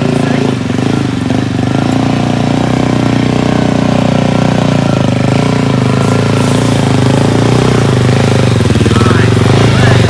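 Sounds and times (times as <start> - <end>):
motorcycle engine running: 0.0 - 10.0
wheels splashing through water: 0.0 - 10.0.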